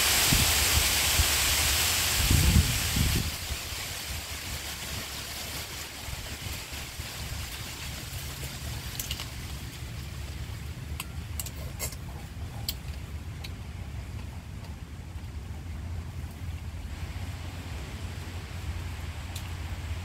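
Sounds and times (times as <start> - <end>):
wind rumble on microphone: 0.2 - 11.0.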